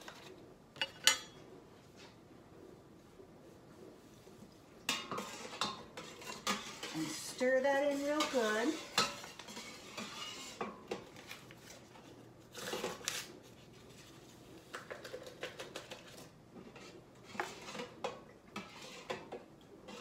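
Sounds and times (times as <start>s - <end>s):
utensil scraping in a pot: 3.5s - 14.5s, 15.2s - 20.0s.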